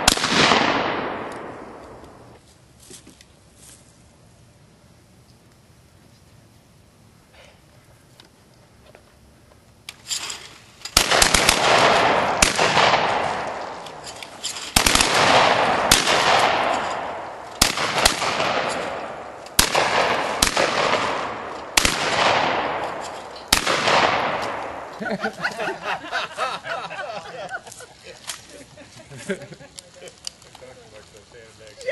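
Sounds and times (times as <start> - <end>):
shotguns firing: 0.0 - 2.3, 10.9 - 25.0
gunshot echo rolling: 0.0 - 2.4, 10.2 - 25.6.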